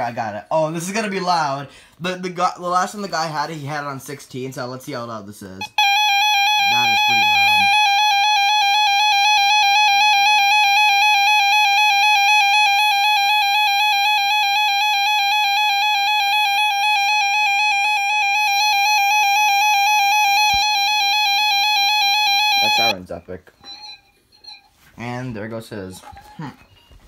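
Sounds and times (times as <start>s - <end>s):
weather alert radio tone: 5.6s - 23.1s.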